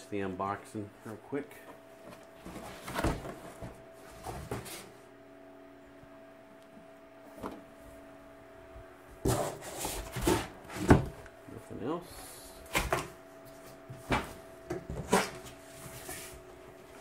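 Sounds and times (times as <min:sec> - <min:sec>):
faint steady hum: 0:00.0 - 0:17.0
cardboard rustling and scraping: 0:02.0 - 0:05.0, 0:09.2 - 0:11.2, 0:12.8 - 0:17.0.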